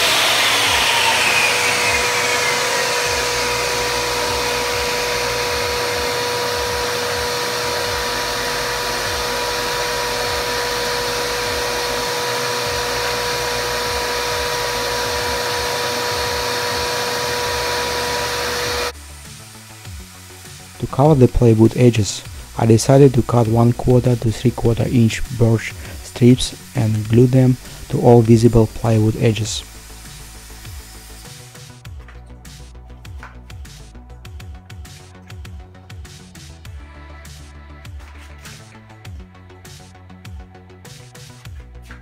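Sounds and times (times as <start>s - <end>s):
saw blade spinning down: 0.0s - 31.8s
shop vacuum whine: 0.0s - 32.3s.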